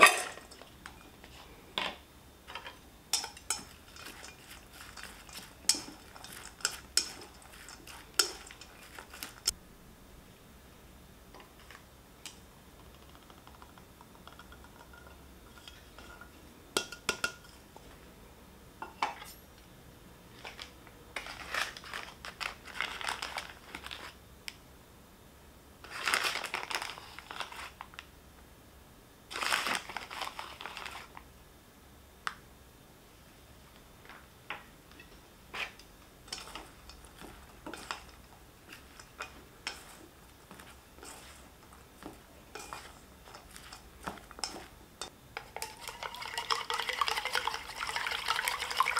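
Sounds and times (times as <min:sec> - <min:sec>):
chopsticks tapping: 0:02.5 - 0:09.5, 0:34.5 - 0:47.5
flour rustling: 0:03.5 - 0:09.6, 0:29.3 - 0:31.2, 0:35.5 - 0:45.1.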